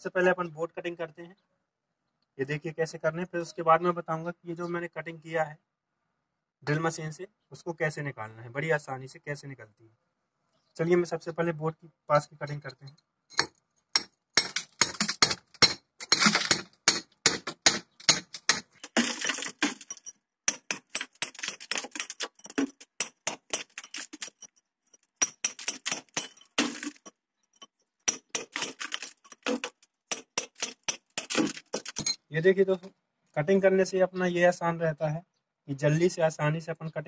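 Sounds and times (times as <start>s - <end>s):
hammer striking steel chisel: 13.3s - 24.5s, 25.2s - 32.2s.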